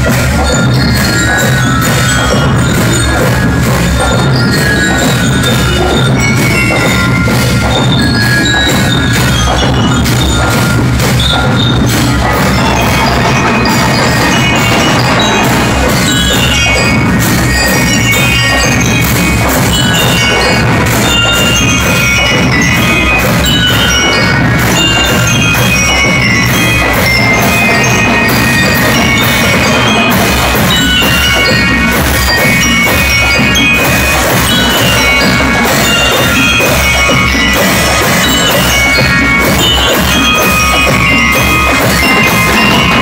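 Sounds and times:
bell lyres melody: 0.0 - 43.0
steady drumming: 0.0 - 43.0.

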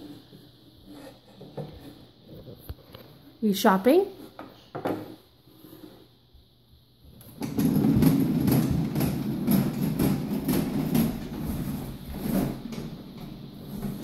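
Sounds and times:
plastic wheels rolling on wood floor: 7.0 - 14.0.

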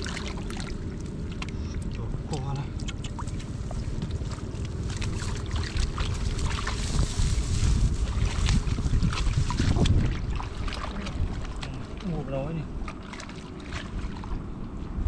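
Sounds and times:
wind rumble on microphone: 0.0 - 15.0
hands splashing in muddy water: 2.7 - 14.4.

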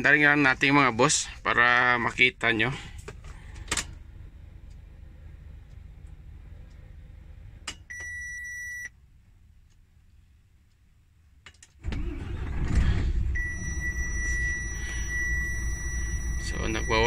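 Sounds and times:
diesel engine cranking and running: 2.6 - 7.8, 11.8 - 17.0
ignition switch click: 7.7 - 8.8
dashboard warning beep: 7.9 - 9.0, 13.4 - 17.0.

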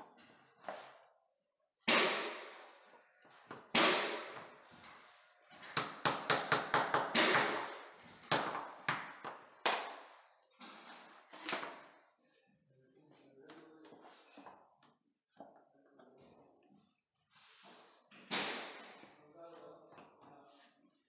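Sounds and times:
rubber mallet knocking on vinyl planks: 5.8 - 10.0.

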